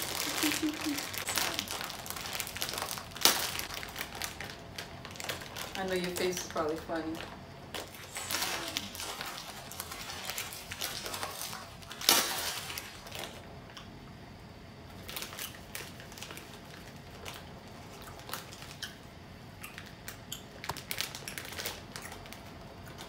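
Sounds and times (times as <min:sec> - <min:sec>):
plastic bag tearing open: 0:00.0 - 0:13.4, 0:15.0 - 0:18.8, 0:20.6 - 0:22.4
plastic wrapper crinkling: 0:00.0 - 0:13.4, 0:14.9 - 0:23.0.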